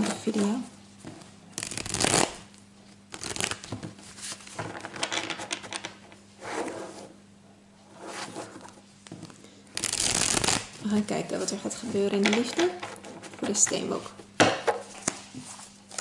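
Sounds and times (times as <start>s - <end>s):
cards being shuffled: 1.6s - 2.4s, 3.1s - 5.9s, 9.8s - 10.8s.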